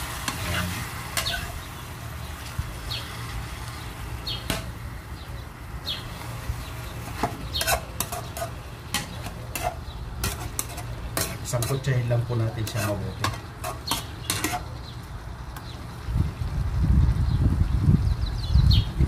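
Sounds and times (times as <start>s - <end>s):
metal spoon scraping a pan: 0.0s - 1.7s, 7.0s - 14.8s
chicken sizzling: 0.0s - 16.8s.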